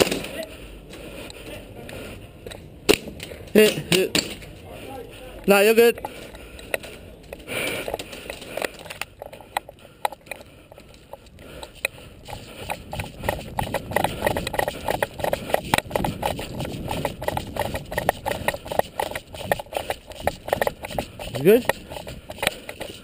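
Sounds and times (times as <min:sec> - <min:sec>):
footsteps on dirt: 0:03.5 - 0:23.0
gear jostling against camera: 0:05.3 - 0:23.0.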